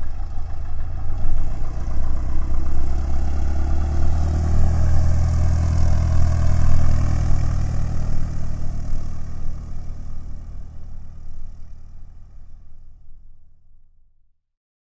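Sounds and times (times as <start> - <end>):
propeller airplane drone: 0.0 - 13.5.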